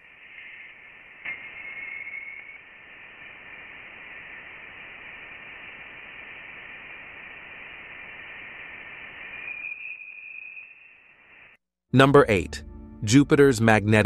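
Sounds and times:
thin whistling tone: 0.0 - 2.8, 9.1 - 11.6
steady hiss: 0.0 - 11.6.

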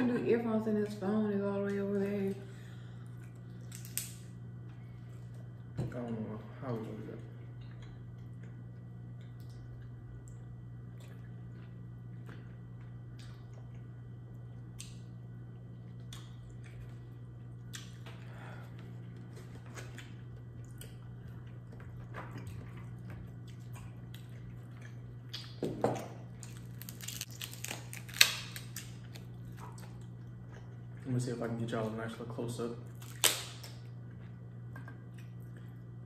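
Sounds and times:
wet squishing and clicks: 3.2 - 4.2, 7.5 - 11.3, 15.9 - 17.0, 17.6 - 18.2
crab shells snapping: 3.6 - 4.2, 26.4 - 29.3, 33.0 - 33.8
chewing: 15.8 - 25.6.

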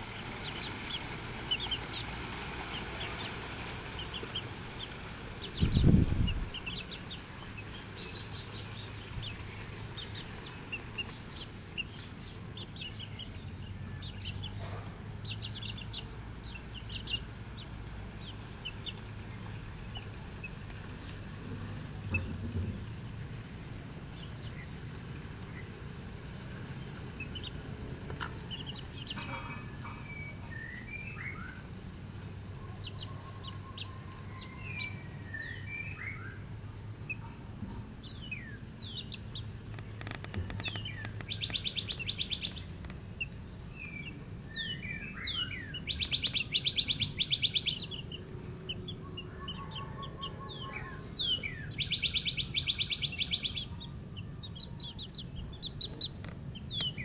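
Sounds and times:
loud rapid bird trills: 0.0 - 21.0, 38.0 - 57.0
chicks peeping and chirping: 0.0 - 23.0, 24.0 - 31.7, 32.6 - 57.0.

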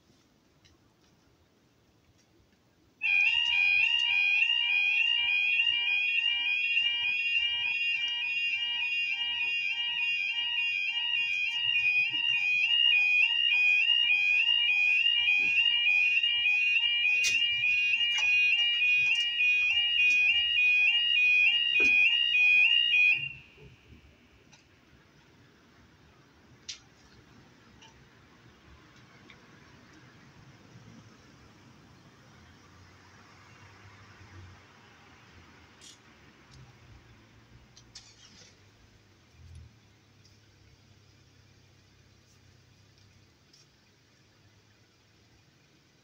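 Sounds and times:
level crossing alarm warbling: 3.0 - 24.0.

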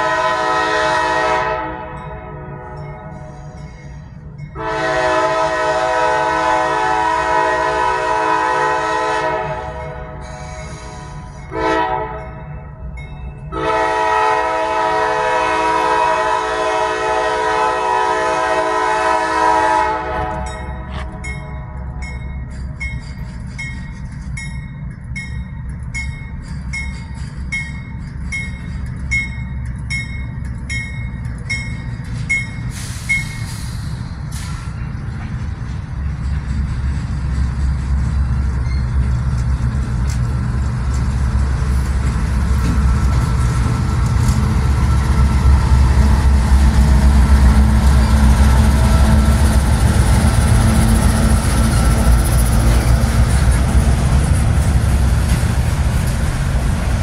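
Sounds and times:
locomotive air horn blasts: 0.0 - 3.6, 4.5 - 12.4, 13.5 - 21.1
locomotive engine and wheels rumbling: 0.0 - 57.0.

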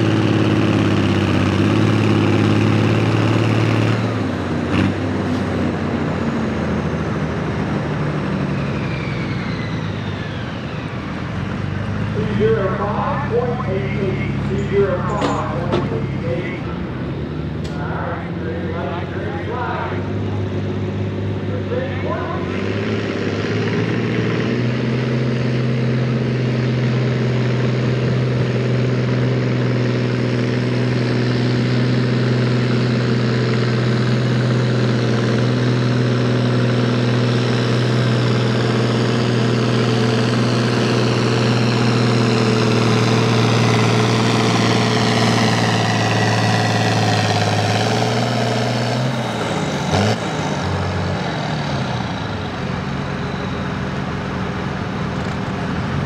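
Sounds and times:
tractor diesel engine roaring: 0.0 - 56.0.

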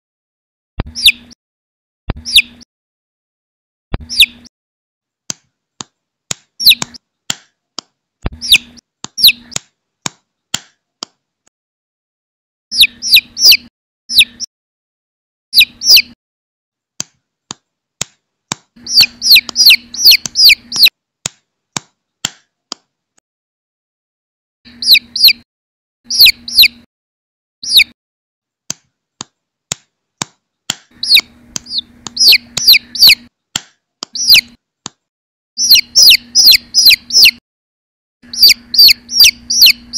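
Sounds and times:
chick peeping: 0.9 - 1.4, 2.2 - 2.6, 4.0 - 4.5, 6.6 - 7.0, 8.3 - 9.6, 12.7 - 14.5, 15.6 - 16.2, 18.8 - 20.9, 24.7 - 25.4, 26.1 - 26.9, 27.6 - 28.0, 31.0 - 33.3, 34.2 - 34.6, 35.6 - 37.4, 38.2 - 39.9
sharp clicks: 17.0 - 22.8, 29.7 - 35.0.

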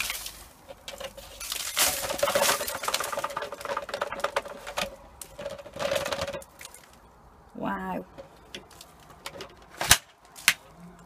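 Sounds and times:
plastic dust bin rattling: 0.0 - 6.6.

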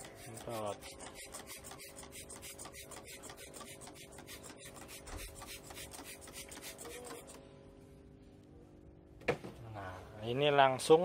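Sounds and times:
spray bottle hissing: 1.5 - 7.4.

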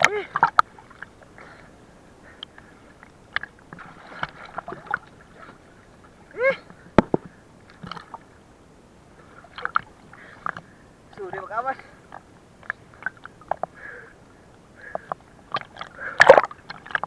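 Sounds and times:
water splashing and sloshing: 0.0 - 17.0.

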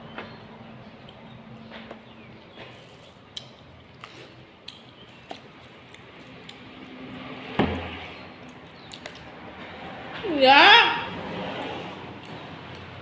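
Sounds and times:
loud thump: 7.6 - 8.0.

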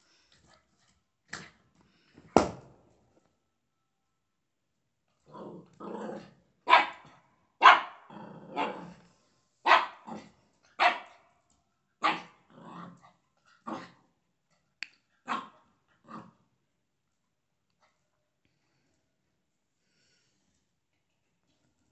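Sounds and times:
puppy barking: 6.6 - 8.9, 9.6 - 10.2, 10.8 - 11.3, 12.0 - 12.4, 15.2 - 15.6.

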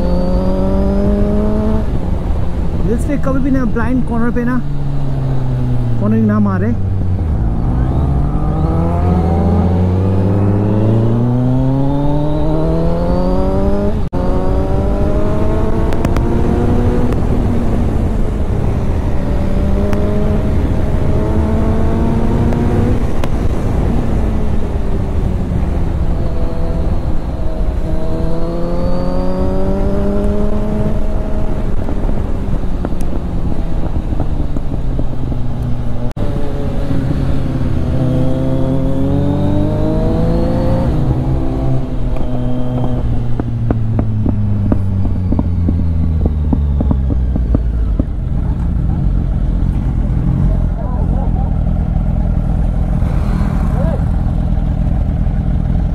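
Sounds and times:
wind rush: 0.0 - 48.3
motorcycle engine revving: 0.0 - 55.9.

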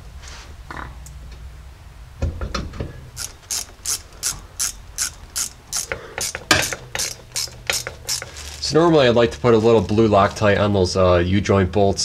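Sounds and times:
ratchet wrench clicking: 3.2 - 8.6.

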